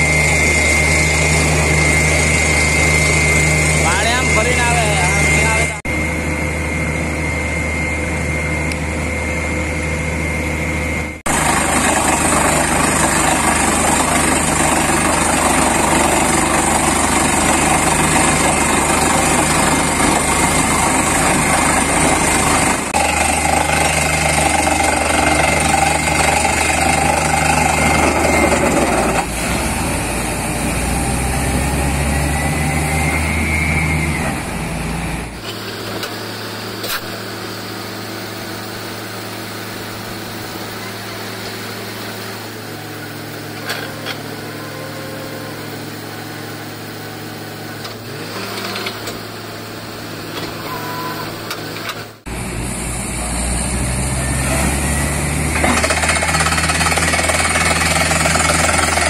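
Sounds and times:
diesel engine and compressor drone: 0:00.0 - 0:59.0
thin steady whistle: 0:32.0 - 0:35.4, 0:50.6 - 0:51.4.

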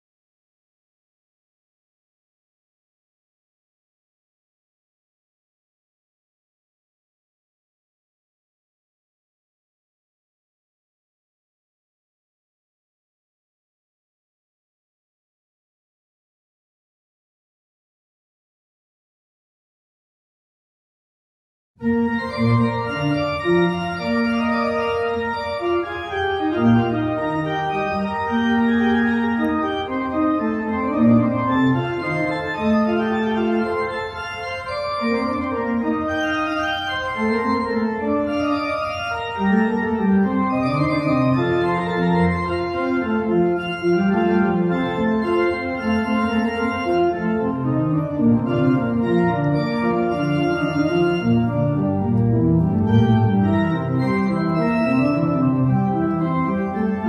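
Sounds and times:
church organ playing chords: 0:21.8 - 0:57.0.

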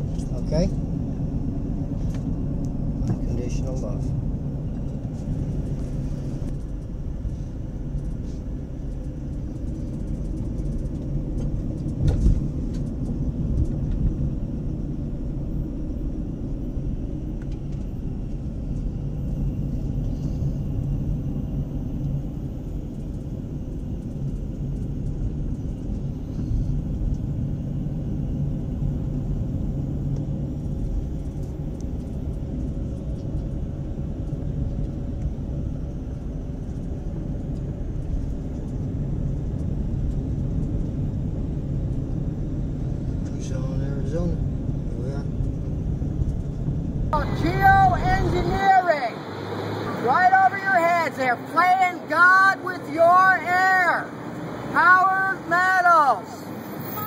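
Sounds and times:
car engine and tyre rumble: 0:00.0 - 0:57.0
faint steady hum: 0:00.0 - 0:57.0.

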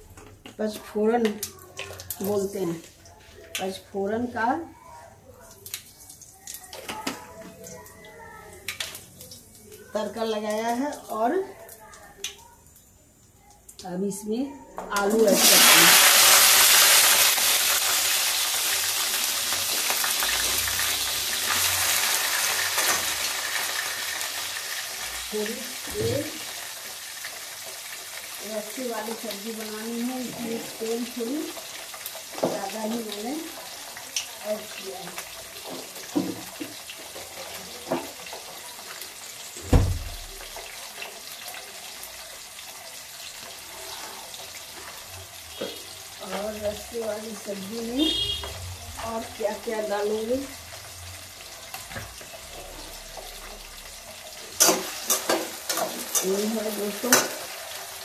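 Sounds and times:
potatoes sizzling in hot oil: 0:14.9 - 0:58.0
low thump: 0:39.7 - 0:40.1.

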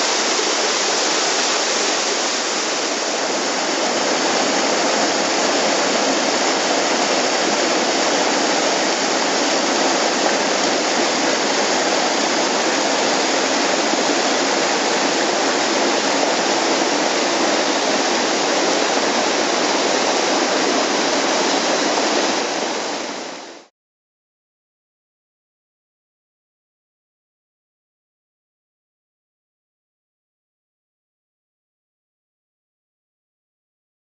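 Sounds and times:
waterfall rushing: 0:00.0 - 0:23.7.

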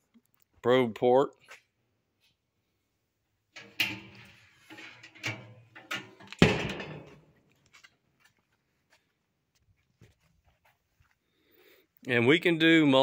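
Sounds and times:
metal lid clanking and rattling: 0:03.6 - 0:07.3
metal lid closing thud: 0:03.6 - 0:07.3.

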